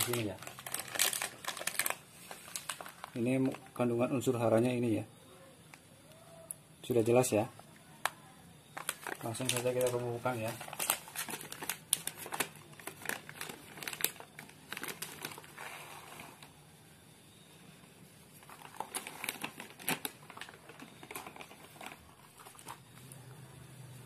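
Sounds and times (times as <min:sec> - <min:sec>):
plastic bag crinkling: 0:00.0 - 0:04.0, 0:08.7 - 0:16.5, 0:18.3 - 0:23.2.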